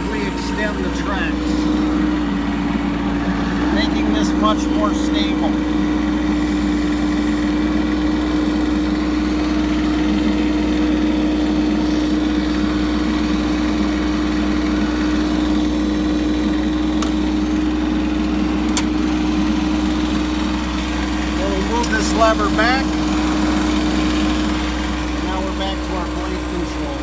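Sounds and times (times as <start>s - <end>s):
diesel excavator engine droning: 0.0s - 27.0s.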